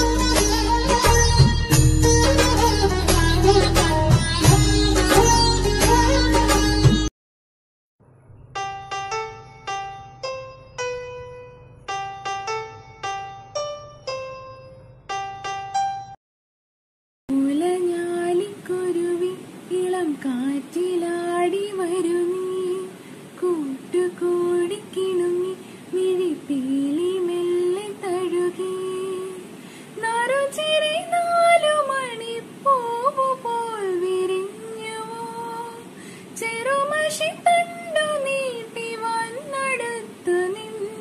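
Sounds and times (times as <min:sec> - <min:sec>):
woman singing unaccompanied: 0:00.0 - 0:07.1, 0:17.3 - 0:41.0.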